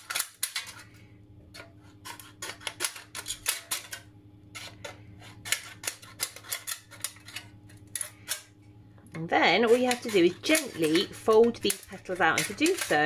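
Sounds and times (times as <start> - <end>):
scissors snipping metal can: 0.0 - 0.7, 9.6 - 13.0.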